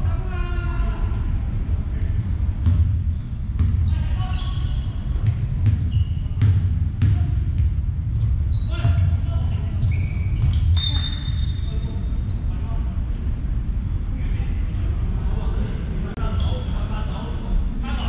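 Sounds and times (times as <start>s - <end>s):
players' voices: 0.0s - 7.8s, 8.4s - 18.0s
sneaker squeaks: 0.2s - 16.7s
basketball bouncing on court: 2.0s - 11.5s.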